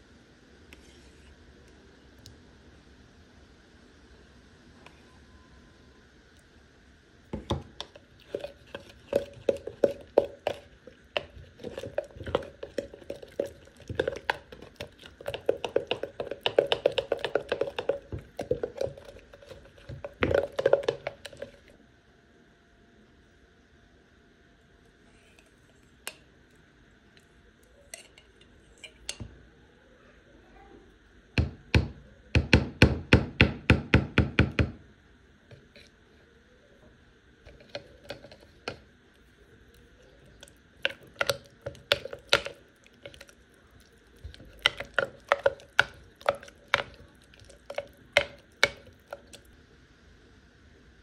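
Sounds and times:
spoon knocking and scraping cup: 7.4 - 21.7, 37.5 - 38.8, 40.8 - 43.3, 44.2 - 49.5.

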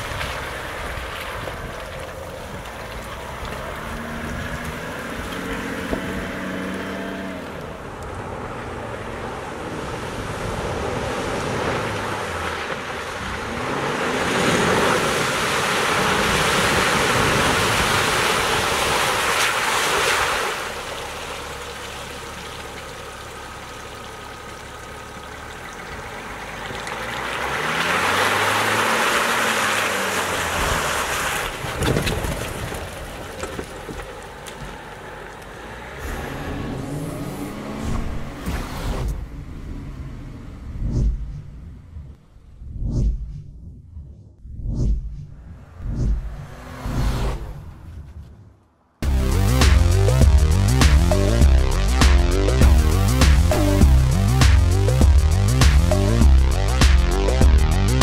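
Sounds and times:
diesel pickup engine revving: 0.0 - 19.2, 20.6 - 31.8, 34.0 - 42.5
water splashing from tyres: 0.0 - 39.2.

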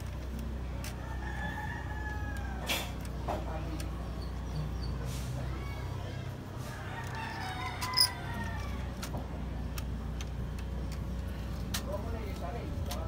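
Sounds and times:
rooster crowing: 1.0 - 2.7, 6.6 - 8.9.

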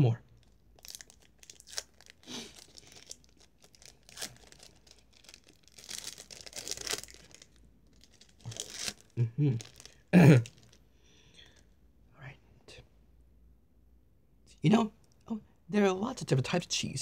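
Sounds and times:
plastic wrapper crinkling: 0.4 - 10.8.

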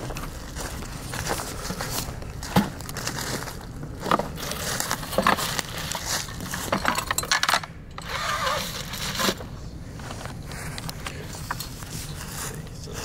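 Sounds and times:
footsteps in dry leaves: 0.0 - 6.6
metal traps and cable rattling: 0.0 - 9.4.

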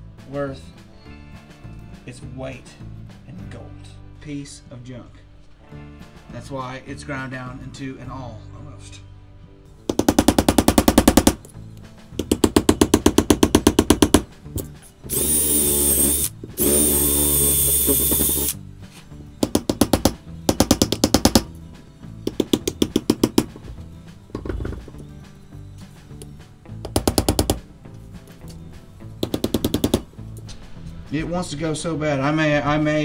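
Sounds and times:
rapid hammer blows: 9.9 - 11.4, 29.2 - 30.1
cordless drill whining into wood: 15.1 - 18.6.

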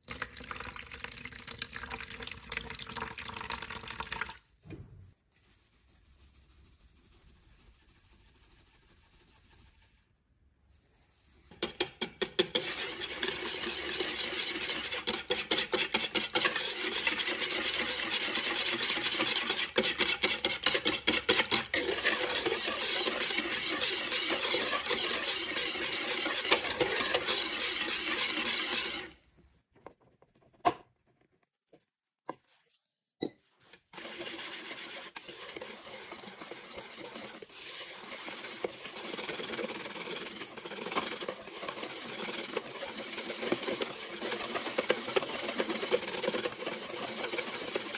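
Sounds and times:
whisk beating in plastic bowl: 11.4 - 29.2, 33.9 - 47.9.

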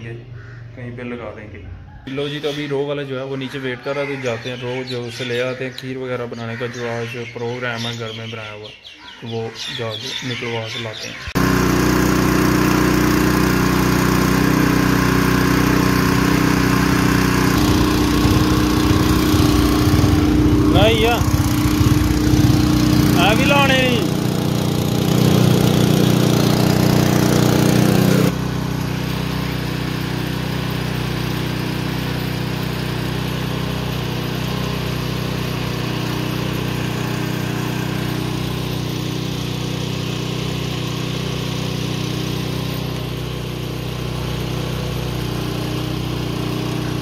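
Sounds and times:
engine driving crusher: 11.4 - 47.0.

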